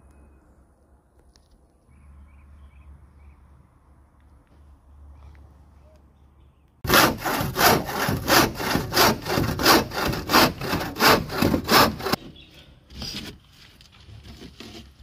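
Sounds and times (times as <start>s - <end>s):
hand saw cutting chipboard: 6.8s - 12.2s.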